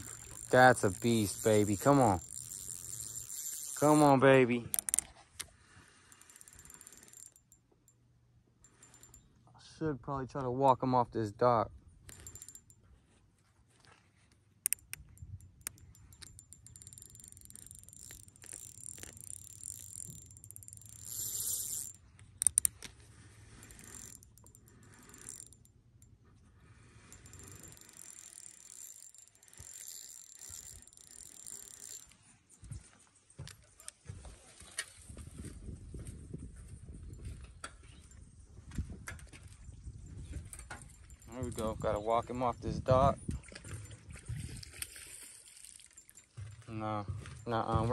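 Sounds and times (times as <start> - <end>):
fishing reel whirring and clicking: 0.0 - 8.0, 8.6 - 9.3, 12.1 - 12.8, 14.6 - 26.2, 26.9 - 32.3, 39.1 - 42.4.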